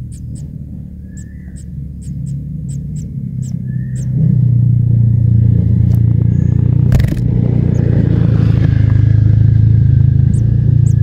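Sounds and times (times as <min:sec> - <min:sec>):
loud low hum: 0:00.0 - 0:11.0.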